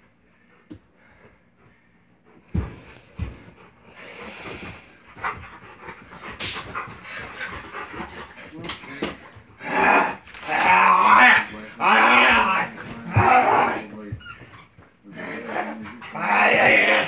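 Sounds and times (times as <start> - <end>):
dog panting: 1.4 - 9.6.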